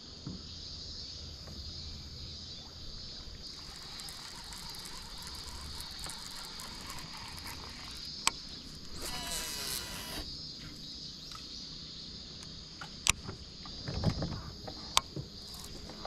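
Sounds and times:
summer insects droning: 0.0 - 16.0
fishing reel gears ticking: 3.4 - 10.3, 15.4 - 16.0.

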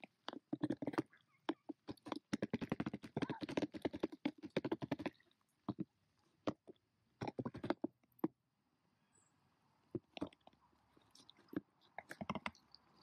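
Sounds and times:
duck bill pecking plastic lid: 0.0 - 5.9.

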